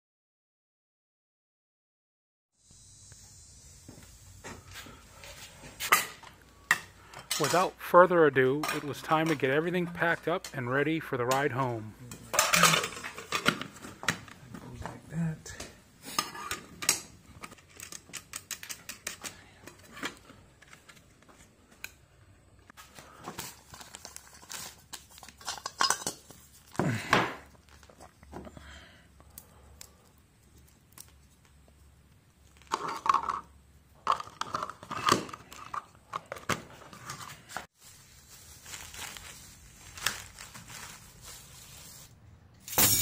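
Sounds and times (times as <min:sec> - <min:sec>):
bags and plastic rustling: 0:22.8 - 0:28.4, 0:36.7 - 0:42.2.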